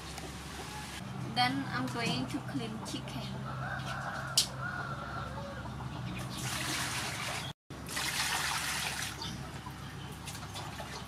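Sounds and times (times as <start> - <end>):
water splashing on chicken: 6.3 - 9.6, 10.2 - 11.0.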